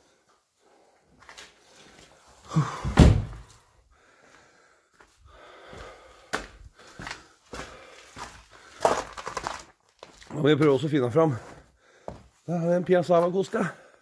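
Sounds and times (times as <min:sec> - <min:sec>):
heavy thump: 0:02.8 - 0:03.5.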